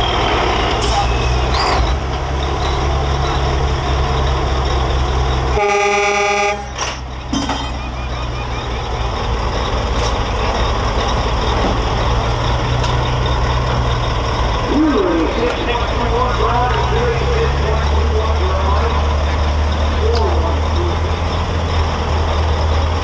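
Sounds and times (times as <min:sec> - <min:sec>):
truck diesel engine rumbling: 0:00.0 - 0:23.0
truck horn blast: 0:05.5 - 0:06.8.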